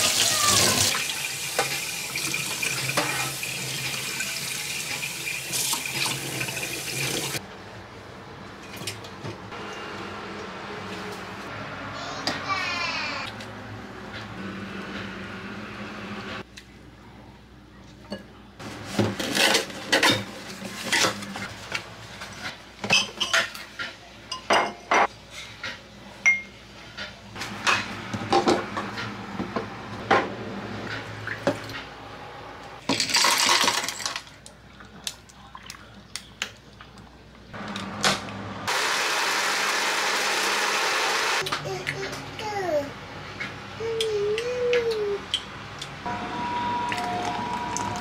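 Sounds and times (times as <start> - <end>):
blender running: 38.7 - 41.4.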